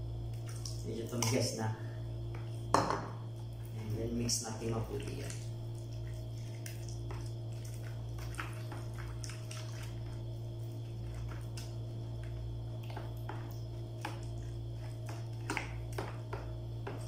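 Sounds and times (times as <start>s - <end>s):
steady low hum: 0.0s - 17.0s
jelly stirred in cream clicks: 4.7s - 17.0s.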